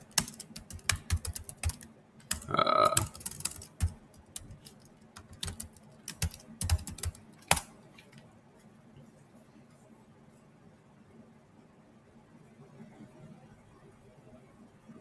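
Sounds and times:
keyboard typing: 0:00.0 - 0:07.7.

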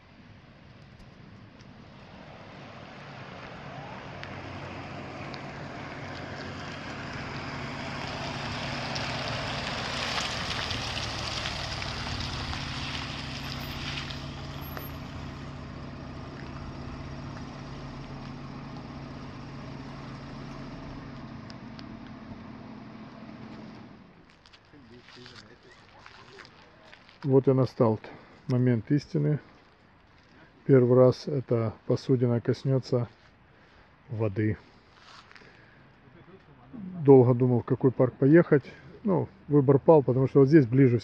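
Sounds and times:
car driving past: 0:01.8 - 0:24.1
car engine running: 0:10.5 - 0:24.1.

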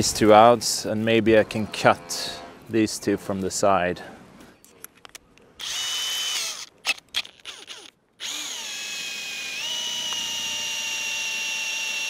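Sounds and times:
cordless drill whining: 0:05.6 - 0:12.0.

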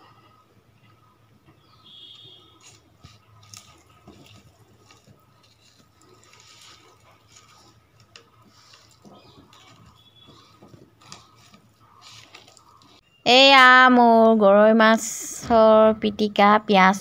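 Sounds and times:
wet squishing of mashing food: 0:01.8 - 0:13.0.

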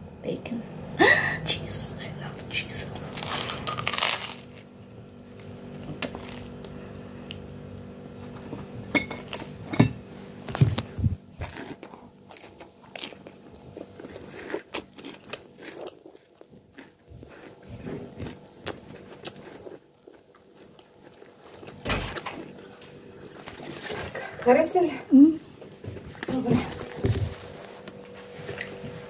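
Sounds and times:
faint steady hum: 0:00.0 - 0:29.0
crunching and chewing sandwich: 0:02.9 - 0:09.6, 0:10.3 - 0:24.3.

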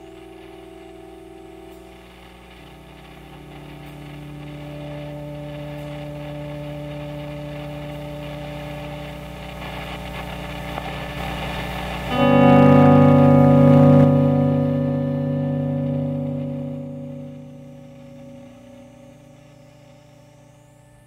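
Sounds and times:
faint hiss: 0:00.0 - 0:21.0
low drone of held tones: 0:00.0 - 0:21.0.

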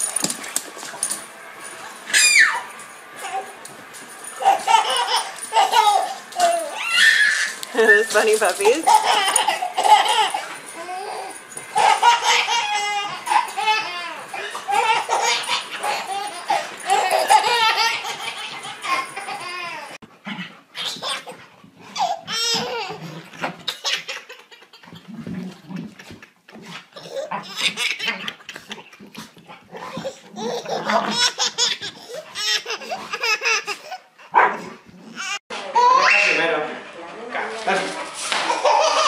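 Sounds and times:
babies laughing: 0:04.4 - 0:07.6, 0:08.6 - 0:20.0, 0:20.8 - 0:21.4, 0:22.0 - 0:23.0, 0:23.6 - 0:25.2, 0:27.0 - 0:34.3, 0:38.3 - 0:39.0.

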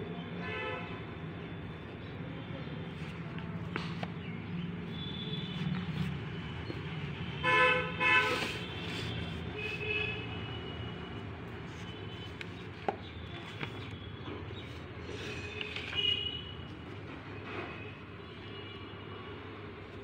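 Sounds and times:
horn tooting: 0:07.4 - 0:10.7.

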